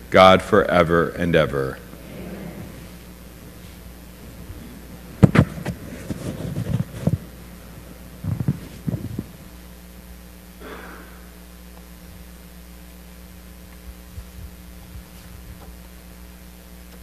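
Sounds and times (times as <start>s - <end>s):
low electrical hum: 0.0s - 17.0s
rustling: 1.8s - 9.7s
footsteps and chair knocks: 1.9s - 9.5s.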